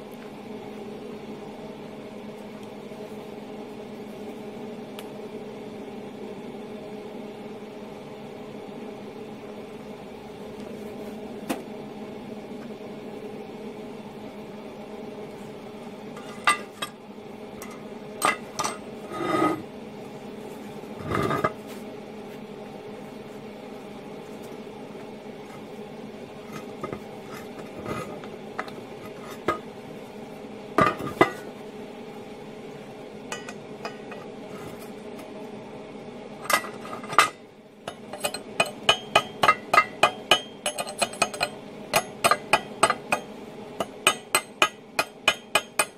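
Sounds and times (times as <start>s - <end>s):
steady hum: 0.0s - 45.9s
chipping hammer tapping metal: 37.9s - 45.9s.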